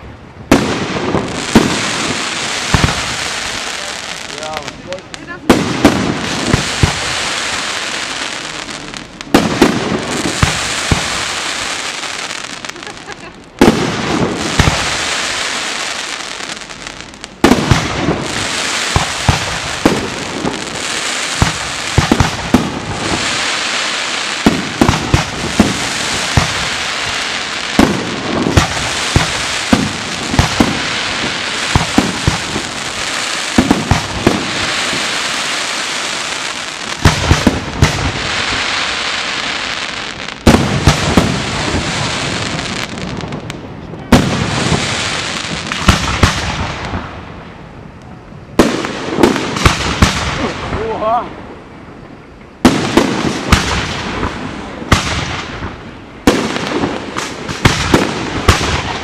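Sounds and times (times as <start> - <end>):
firework crackling: 0.0 - 51.6, 52.6 - 59.0
firework shells bursting: 17.0 - 39.7.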